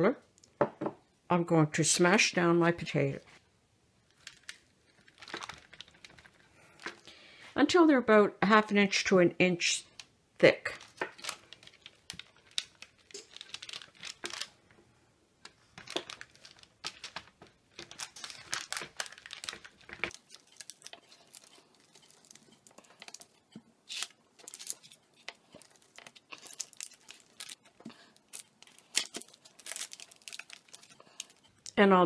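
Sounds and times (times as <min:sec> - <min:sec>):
parchment paper crinkling: 0:04.1 - 0:07.1, 0:10.7 - 0:14.8, 0:15.4 - 0:31.8
potato masher squishing: 0:17.8 - 0:31.6.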